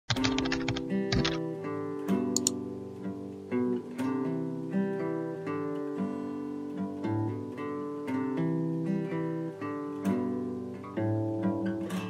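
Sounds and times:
acoustic guitar picking chords: 0.1s - 12.0s.

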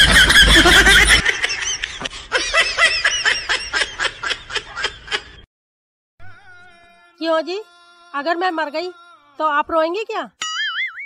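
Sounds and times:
person laughing in bursts: 0.0s - 5.4s.

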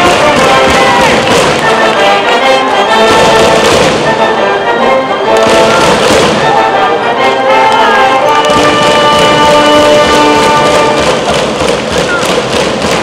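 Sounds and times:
loud percussion hits: 0.0s - 2.0s, 3.0s - 4.4s, 5.4s - 6.6s, 8.3s - 13.0s
brass band playing: 0.0s - 13.0s
crowd cheering: 0.0s - 13.0s.

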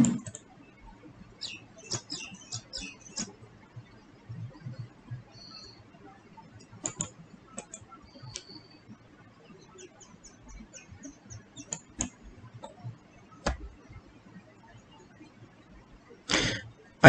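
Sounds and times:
computer mouse clicks: 0.0s - 0.5s, 1.4s - 3.4s, 6.6s - 8.8s, 9.8s - 13.8s
faint small ticks: 6.5s - 14.0s.

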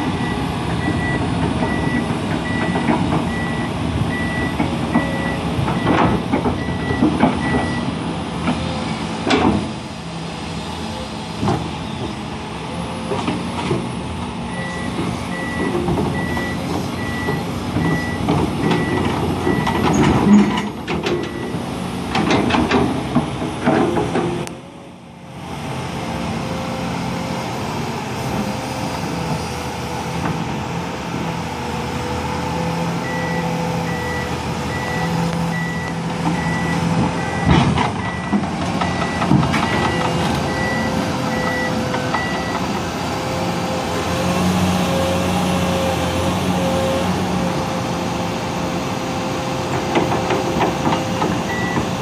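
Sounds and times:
excavator engine whine: 0.0s - 52.0s
steel tracks clanking: 49.4s - 52.0s.

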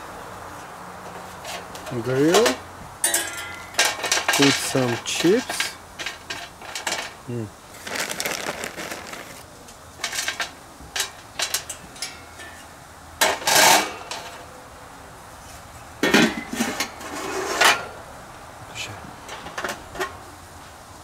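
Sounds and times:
metal pans clattering: 1.4s - 7.2s, 16.0s - 17.9s.

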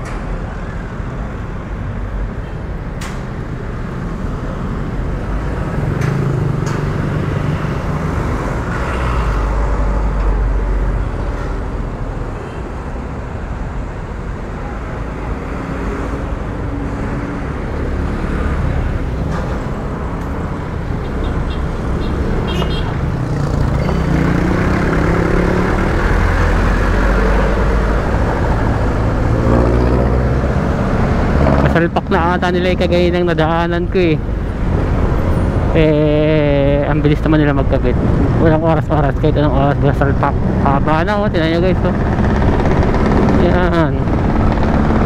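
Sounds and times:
cars and trucks in traffic: 0.0s - 45.0s
motorcycle engine: 21.0s - 31.9s, 40.4s - 45.0s.

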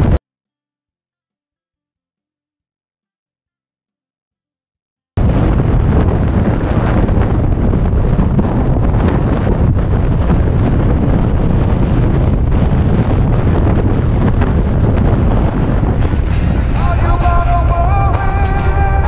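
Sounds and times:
motorcycle engine rumble: 5.2s - 19.0s
wind buffeting microphone: 5.2s - 19.0s.

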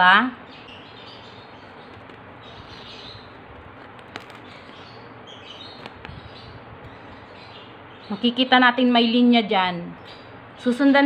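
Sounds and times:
faint bird chirps: 0.4s - 8.9s.

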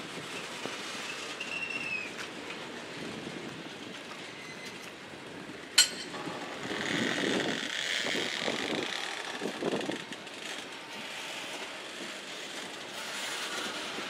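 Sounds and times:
freight train wheel rumble: 0.0s - 14.0s
sharp metallic clank: 5.8s - 6.4s.

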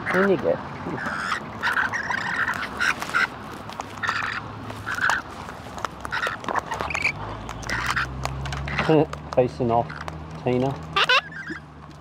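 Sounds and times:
parrots squawking: 0.0s - 5.3s, 6.0s - 9.0s, 10.8s - 11.7s.

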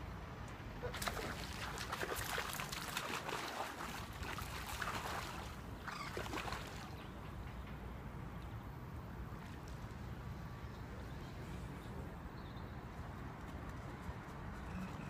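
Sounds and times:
water splashing: 0.8s - 7.0s.

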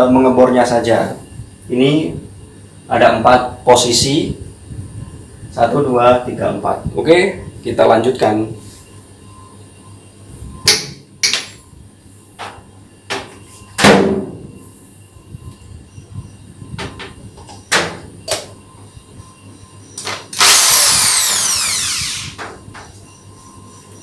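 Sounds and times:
electric drill whining: 20.0s - 22.6s.

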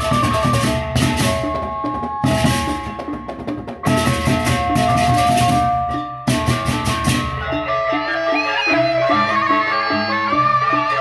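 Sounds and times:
double-headed drums: 0.0s - 7.8s
kettle-gong melody: 3.8s - 7.8s.

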